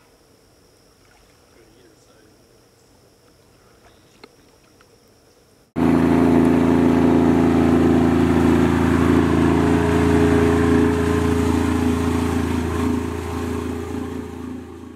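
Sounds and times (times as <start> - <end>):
outboard motor idling: 5.8 - 14.9.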